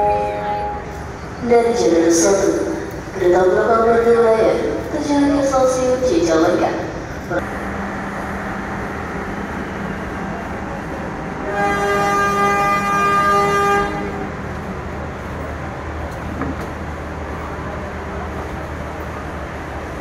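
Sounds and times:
train horn blast: 0:00.0 - 0:01.0, 0:11.3 - 0:14.4
crowded station background noise: 0:00.0 - 0:20.0.

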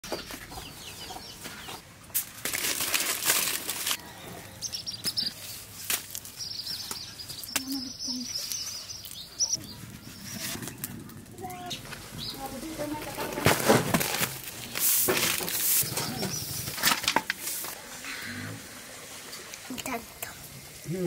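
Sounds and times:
small birds chirping: 0:00.0 - 0:01.9, 0:04.0 - 0:13.2, 0:15.6 - 0:16.8
leaf rustling: 0:02.2 - 0:20.1.

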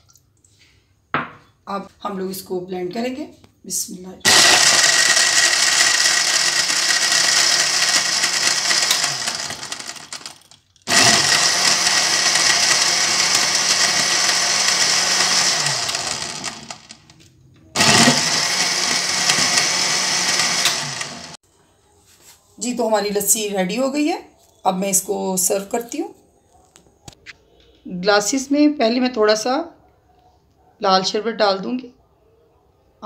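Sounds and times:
electric blender running: 0:04.3 - 0:17.1, 0:17.8 - 0:21.4.

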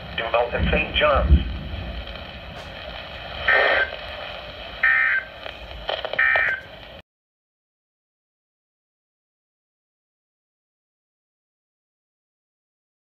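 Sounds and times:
radio hiss: 0:00.0 - 0:07.0
digital data tone bursts: 0:04.8 - 0:05.3, 0:06.2 - 0:06.7.

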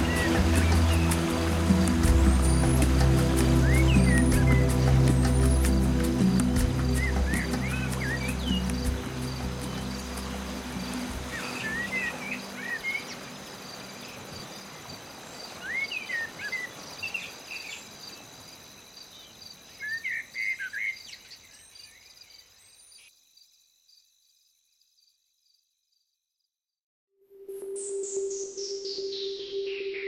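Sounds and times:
low music notes: 0:00.0 - 0:12.4
birds chirping: 0:00.0 - 0:18.2.

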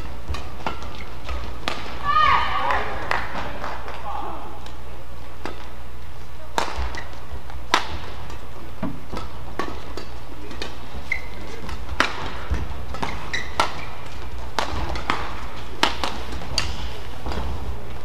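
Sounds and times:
low hum of hall: 0:00.0 - 0:18.0
rackets striking shuttlecock: 0:00.0 - 0:18.0
shoe squeak: 0:00.8 - 0:01.3, 0:06.9 - 0:07.2, 0:11.0 - 0:11.6, 0:13.0 - 0:14.1.

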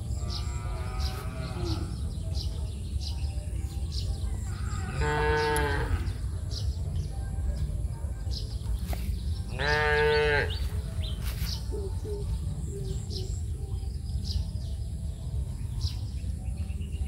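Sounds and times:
farm animal calling: 0:00.0 - 0:02.4, 0:04.3 - 0:06.6, 0:09.4 - 0:13.5
steady low rumble: 0:00.0 - 0:17.0.

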